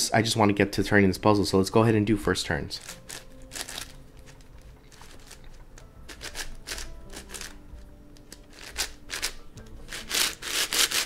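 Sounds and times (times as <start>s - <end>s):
quiet background music: 0.0s - 11.0s
puzzle cube clicking and scraping: 2.8s - 7.6s, 8.2s - 11.0s.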